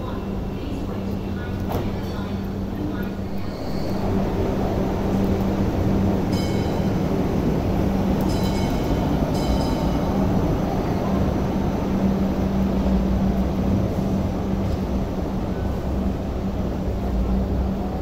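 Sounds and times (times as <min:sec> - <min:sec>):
light rail train rumbling: 0:00.0 - 0:18.0
electric hum: 0:03.0 - 0:09.4.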